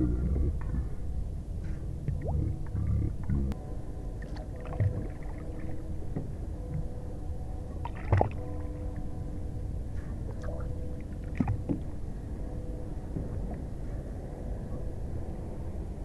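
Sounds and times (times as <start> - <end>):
low engine rumble: 0.0 - 16.0
water against hull: 1.6 - 3.6, 4.2 - 9.3, 9.9 - 14.8.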